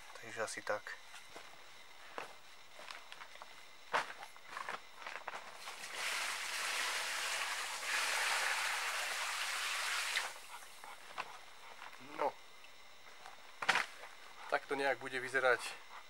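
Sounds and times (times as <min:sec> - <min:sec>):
footsteps: 0:01.1 - 0:05.8
water pouring onto plastic tarp: 0:05.6 - 0:10.3.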